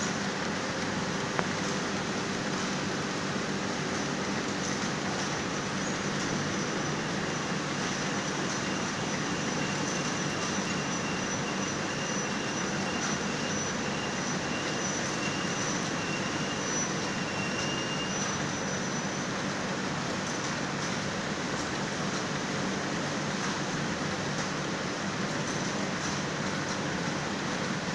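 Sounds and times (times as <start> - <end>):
yarn-winding machine whirring: 0.0 - 27.9.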